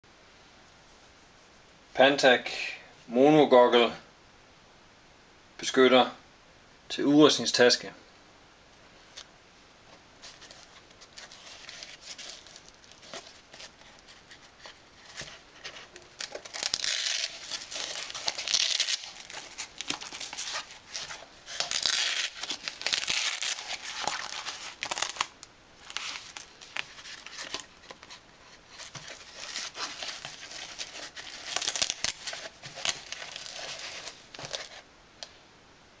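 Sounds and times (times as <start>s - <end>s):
fabric rustling and ripping: 10.2s - 34.8s.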